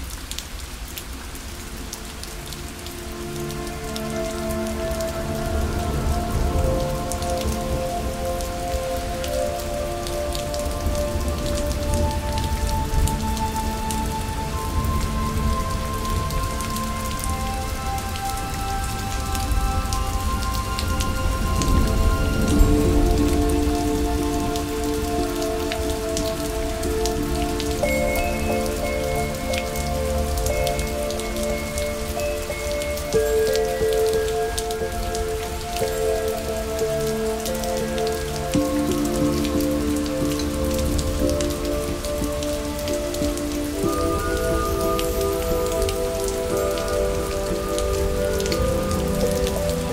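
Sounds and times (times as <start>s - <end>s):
ambient music notes: 0.0s - 49.9s
steady rain: 0.0s - 49.9s.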